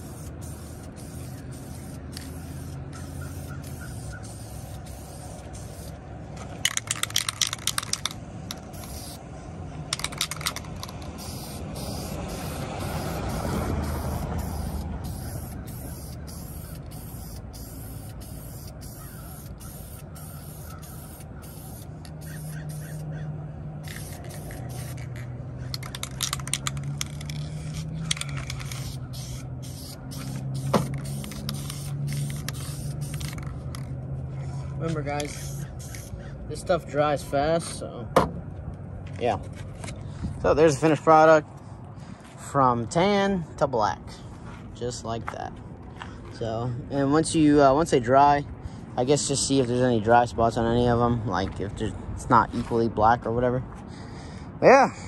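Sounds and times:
spray paint can hissing: 0:00.0 - 0:06.0, 0:06.6 - 0:09.2, 0:09.9 - 0:23.1, 0:23.8 - 0:33.9, 0:35.2 - 0:36.2.

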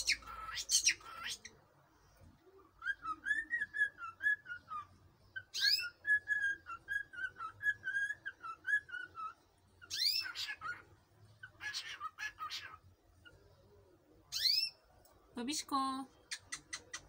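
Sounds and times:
cockatiel whistling: 0:02.8 - 0:10.4.

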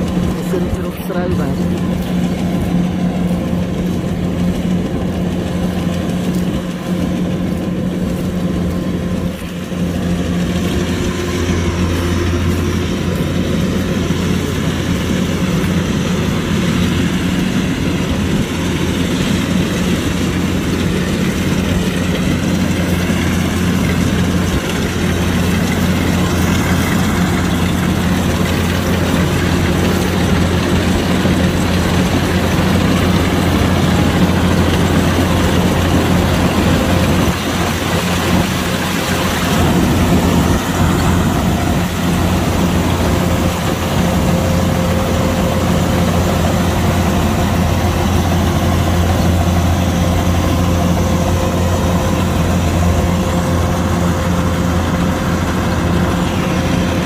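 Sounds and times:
combine harvester engine hum: 0:00.0 - 0:57.0.

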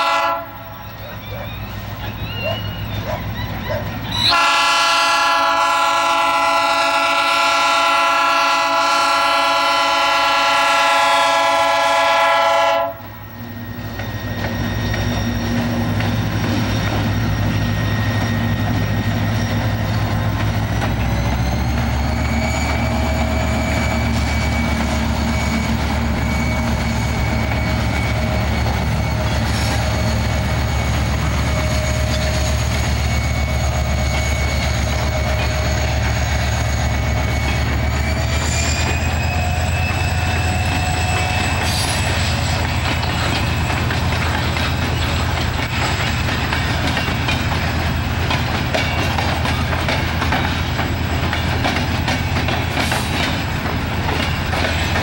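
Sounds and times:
locomotive horn: 0:00.0 - 0:01.3, 0:02.4 - 0:13.2
diesel locomotive rumble: 0:00.0 - 0:55.0.

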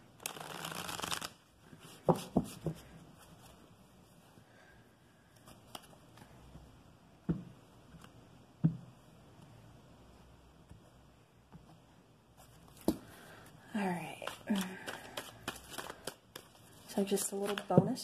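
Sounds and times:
cards shuffling: 0:00.2 - 0:01.4, 0:14.1 - 0:17.8.

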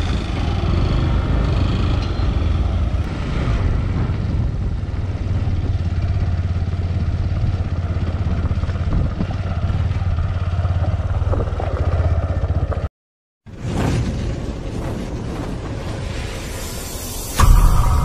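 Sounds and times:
motorcycle engine running: 0:00.0 - 0:12.9.

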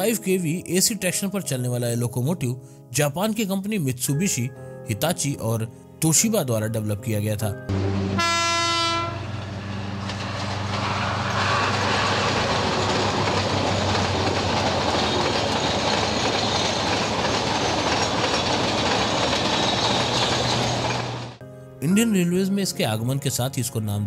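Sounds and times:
train wheels clattering over rail joints: 0:09.4 - 0:21.4.

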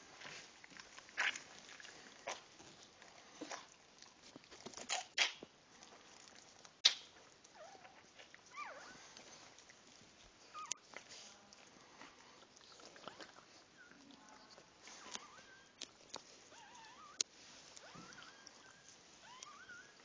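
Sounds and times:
dog licking puppy: 0:00.1 - 0:20.0
puppy squeaks: 0:15.0 - 0:15.8, 0:16.5 - 0:17.2, 0:17.8 - 0:20.0.

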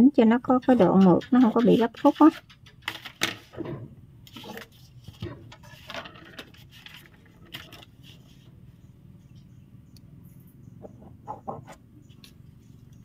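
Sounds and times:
paper rubbing and rustling: 0:04.3 - 0:08.5.

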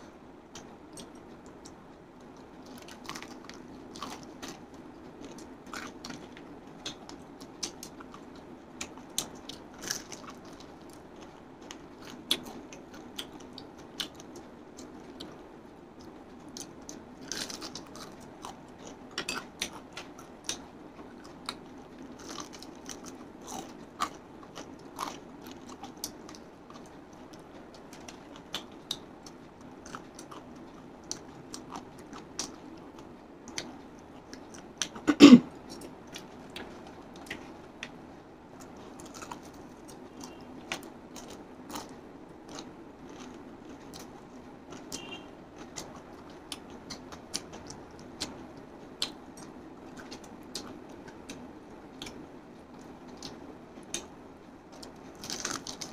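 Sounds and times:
crunching fried chicken: 0:02.7 - 0:15.4, 0:16.0 - 0:35.0, 0:38.6 - 0:48.4, 0:54.7 - 0:55.9.

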